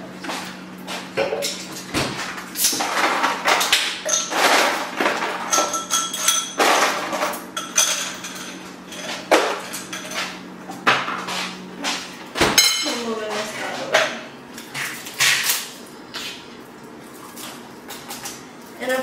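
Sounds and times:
glassware and dishes clinking: 4.1s - 4.5s, 5.4s - 7.0s, 7.6s - 10.2s, 12.6s - 13.0s.

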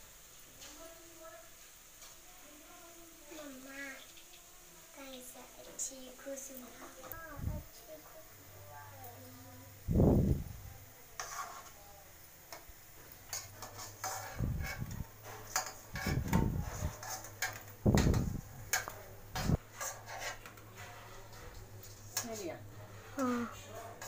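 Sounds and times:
metal spoon clinking and scraping: 11.2s - 11.8s, 13.3s - 23.2s.

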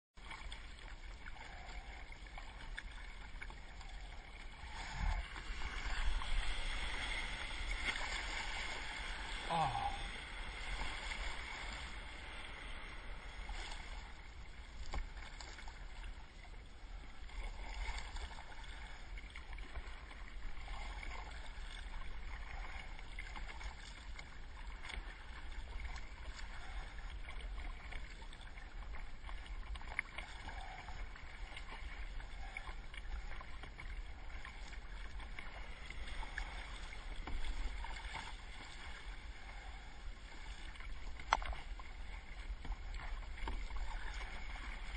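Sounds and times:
steady low rumble: 0.2s - 20.2s
water sloshing around kayak: 0.2s - 44.9s.

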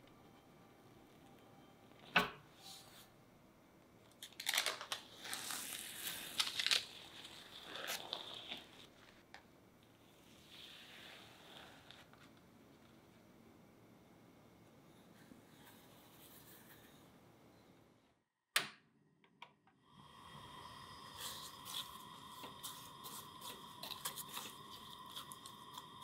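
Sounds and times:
faint hum: 0.0s - 18.2s, 19.7s - 26.0s
spatula stirring frozen fruit: 21.2s - 26.0s.

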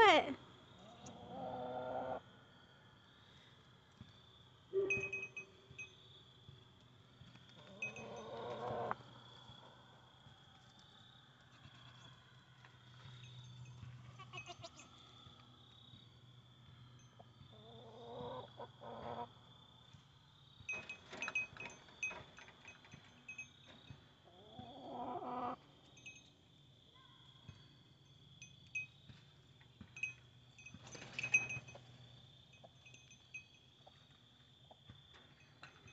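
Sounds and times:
goat bleating: 14.1s - 14.8s
rustles and knocks: 29.1s - 32.0s.

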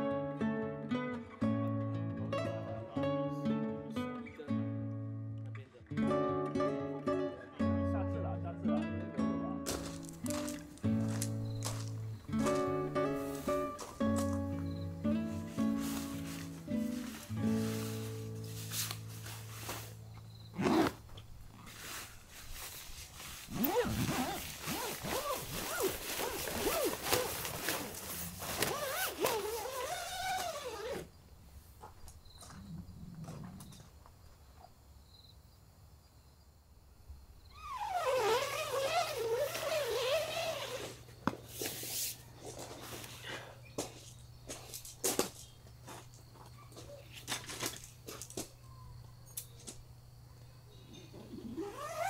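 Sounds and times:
zipper being drawn shut: 20.5s - 21.1s, 23.4s - 31.1s, 37.6s - 41.1s, 51.3s - 52.0s.

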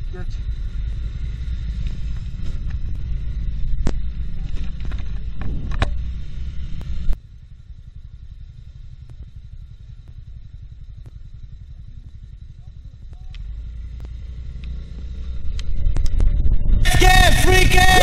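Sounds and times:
scooter engine low hum: 0.0s - 18.0s
scooter engine rumble: 0.0s - 18.0s
sharp clicks: 13.0s - 14.8s.

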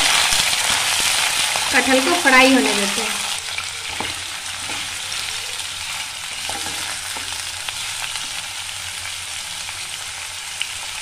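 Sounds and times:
jackfruit sizzling in oil: 0.0s - 11.0s
wooden spatula knocking pan: 3.9s - 5.0s, 6.4s - 7.5s.

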